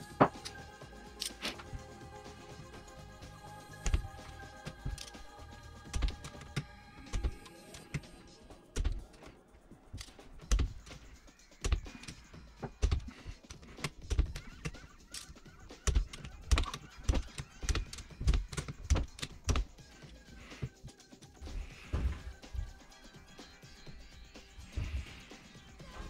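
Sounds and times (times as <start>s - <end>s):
metallic clicks and knocks of tools: 4.7s - 5.3s.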